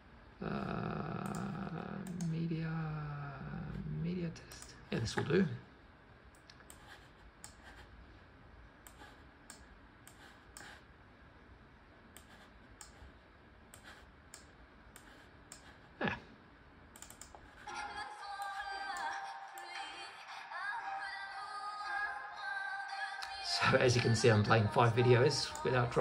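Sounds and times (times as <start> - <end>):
computer mouse clicks: 1.2 - 2.4, 4.5 - 5.3, 6.3 - 7.9, 8.8 - 10.9, 12.1 - 15.9, 16.9 - 17.7
video music: 17.7 - 26.0.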